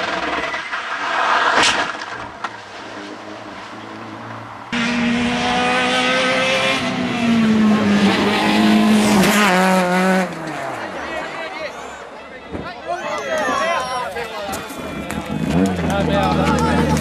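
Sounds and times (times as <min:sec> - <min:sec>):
rally car engine revving: 0:00.0 - 0:11.4, 0:14.8 - 0:17.0.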